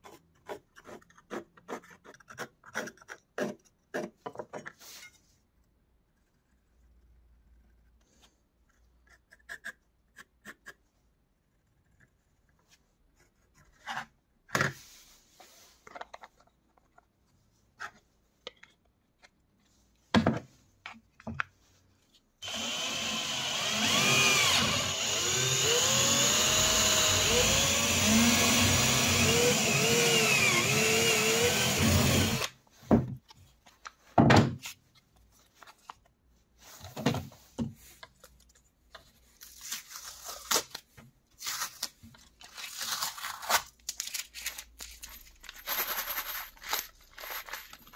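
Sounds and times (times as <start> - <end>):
drill press boring plastic: 22.4 - 32.5.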